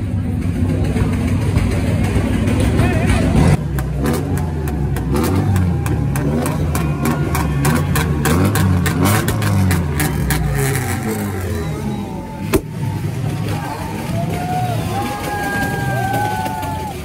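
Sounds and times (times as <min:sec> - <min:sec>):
car engine revving hard: 0:03.3 - 0:12.2
exhaust pops and bangs: 0:12.4 - 0:17.0.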